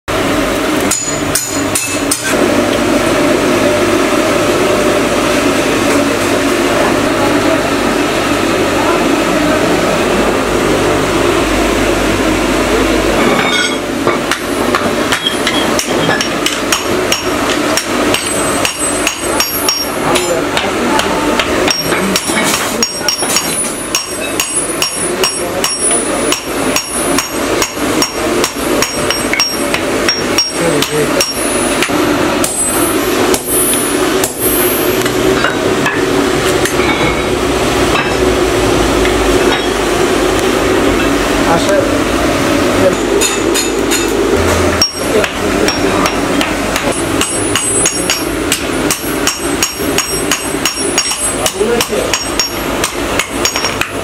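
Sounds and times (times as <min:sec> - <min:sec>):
coal forge rushing hum: 0:00.1 - 0:54.0
hammer striking metal on anvil: 0:00.8 - 0:02.4, 0:13.2 - 0:37.3, 0:43.2 - 0:54.0.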